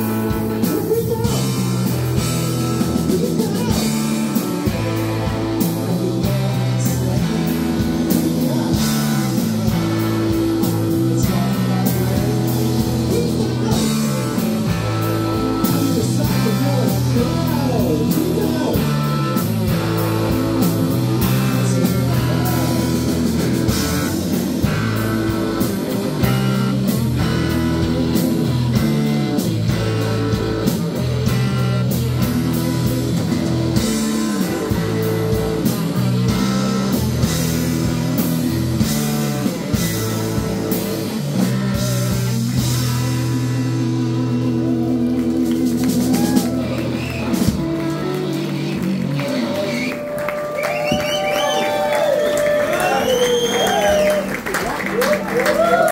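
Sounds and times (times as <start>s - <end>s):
electric bass: 0.0s - 55.9s
electric guitars: 0.0s - 55.9s.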